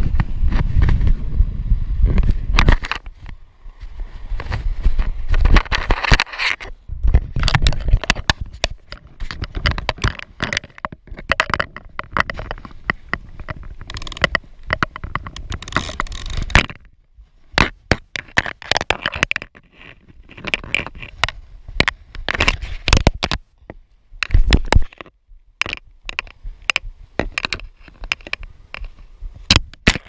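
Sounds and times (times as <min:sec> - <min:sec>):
clothing and grass rustling: 0:01.9 - 0:11.2, 0:11.9 - 0:17.9, 0:19.6 - 0:24.9
sharp crackles: 0:04.2 - 0:16.9.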